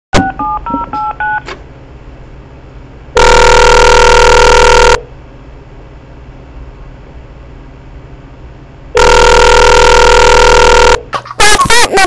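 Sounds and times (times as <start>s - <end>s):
phone keypad beeps: 0.2s - 1.4s
loud harsh buzzing tone: 3.1s - 5.1s, 8.9s - 11.1s.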